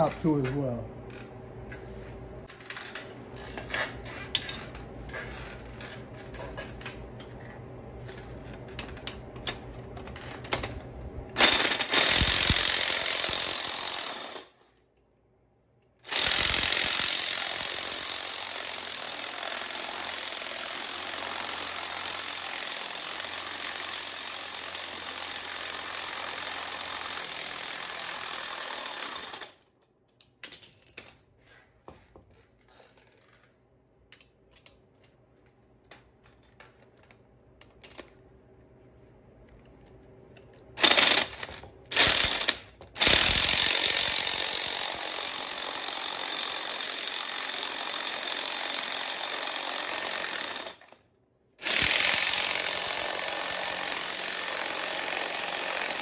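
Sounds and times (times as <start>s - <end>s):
power tool rattling: 11.4s - 14.5s, 16.1s - 29.6s, 40.8s - 51.0s, 51.6s - 56.0s.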